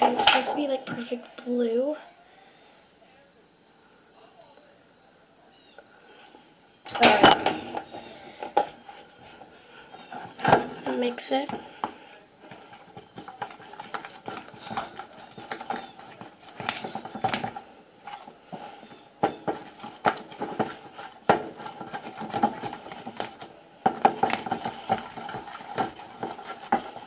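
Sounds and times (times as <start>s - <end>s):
stirring sticky slime: 7.9s - 27.0s
stick knocking plastic bowl: 11.4s - 17.6s, 18.5s - 27.0s.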